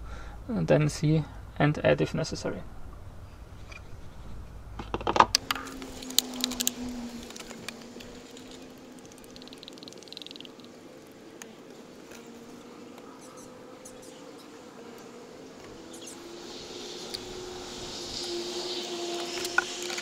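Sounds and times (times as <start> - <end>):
oil pouring through funnel: 5.6 - 10.6.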